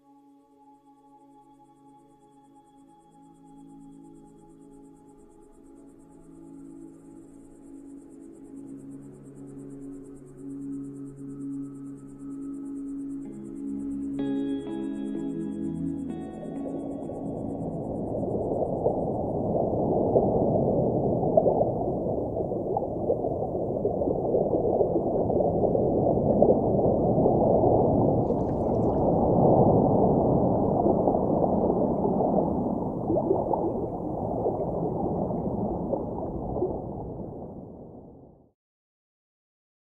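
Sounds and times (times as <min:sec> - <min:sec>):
muffled water rushing and gurgling: 0:15.6 - 0:38.5.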